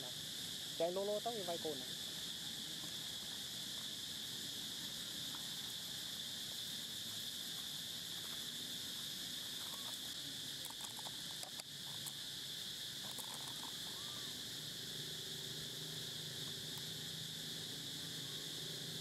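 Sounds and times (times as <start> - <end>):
high-pitched insect drone: 0.0 - 19.0
faint ticks: 9.6 - 12.2, 13.0 - 14.1.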